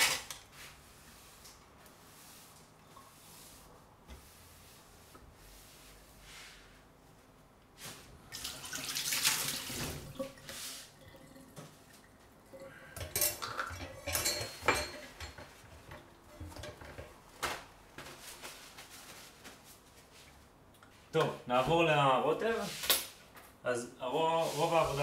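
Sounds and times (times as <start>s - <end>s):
tap water running into sink: 8.4s - 12.3s
dishes and utensils clinking: 13.0s - 17.1s.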